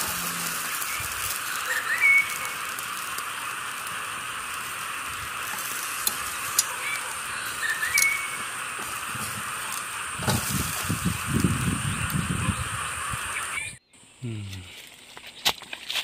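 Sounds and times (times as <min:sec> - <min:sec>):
steady high hiss: 0:00.0 - 0:14.2
bird rising whistle call: 0:00.6 - 0:02.7, 0:06.8 - 0:08.5.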